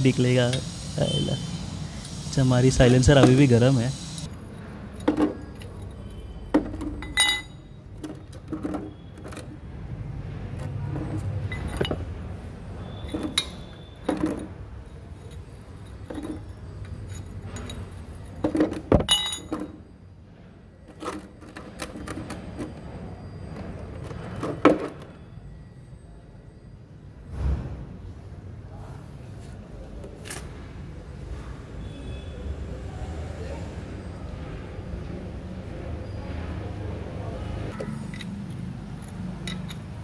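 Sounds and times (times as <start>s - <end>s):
metal spanner clinking: 2.0s - 7.8s, 11.4s - 12.0s, 12.9s - 19.8s, 38.0s - 40.0s.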